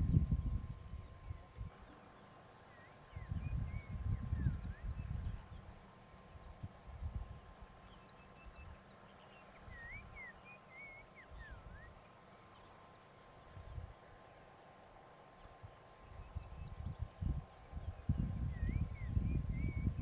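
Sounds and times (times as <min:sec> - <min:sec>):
bird whistling notes: 0:09.6 - 0:12.1.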